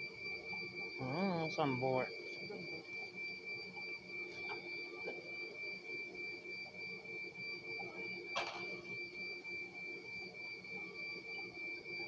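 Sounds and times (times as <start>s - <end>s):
low pulsing machine hum: 0.0s - 12.0s.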